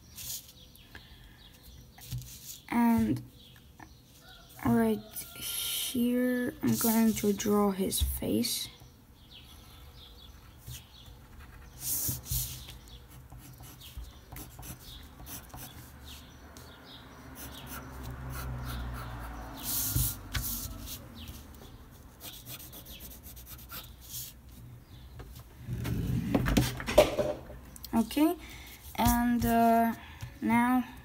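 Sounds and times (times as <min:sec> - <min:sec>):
pencil scratching on paper: 0:10.7 - 0:16.0, 0:17.4 - 0:24.4.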